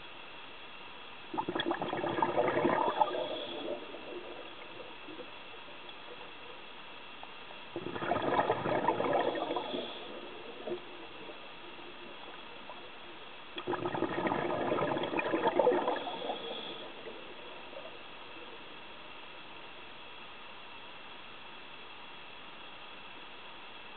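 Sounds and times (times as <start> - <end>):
faint steady hiss: 0.0 - 23.9
diver exhaust bubbles gurgling: 1.3 - 6.4, 7.7 - 18.2.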